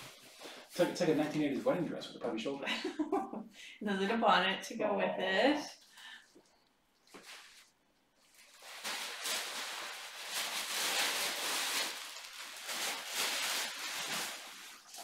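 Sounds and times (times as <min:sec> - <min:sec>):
cloth and wrapping rustling: 0:07.0 - 0:15.0.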